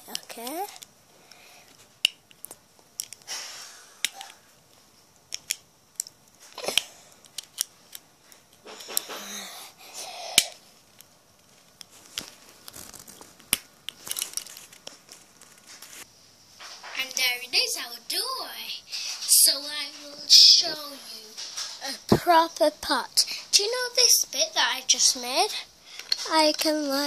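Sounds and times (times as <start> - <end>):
device handling rustling: 10.8 - 16.9.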